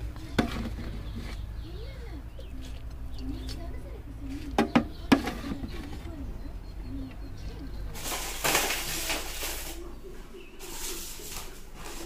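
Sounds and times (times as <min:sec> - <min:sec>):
foil trays crinkling: 0:07.9 - 0:12.0.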